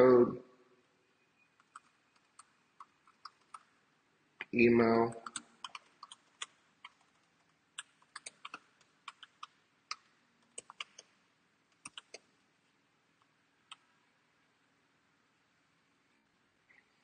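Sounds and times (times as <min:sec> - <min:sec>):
faint keyboard typing: 0:01.5 - 0:03.8, 0:04.4 - 0:12.4, 0:13.2 - 0:14.0.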